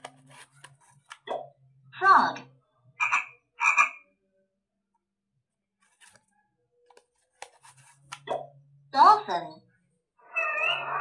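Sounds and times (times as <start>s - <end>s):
frog croaks from toy speaker: 3.0s - 4.0s.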